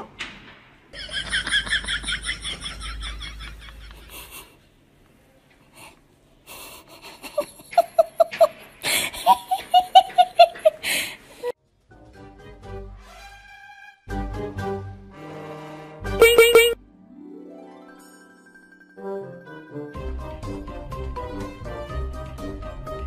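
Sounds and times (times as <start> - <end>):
high-pitched giggling: 7.0 - 10.8, 16.2 - 16.8.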